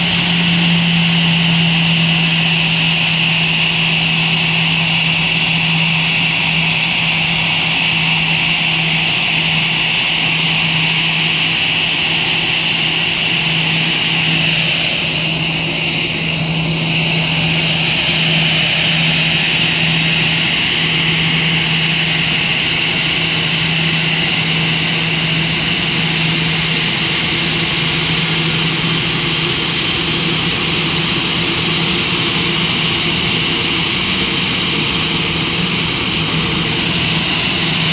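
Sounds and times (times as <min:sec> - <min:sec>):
jet engines idling whine: 0:00.0 - 0:37.9.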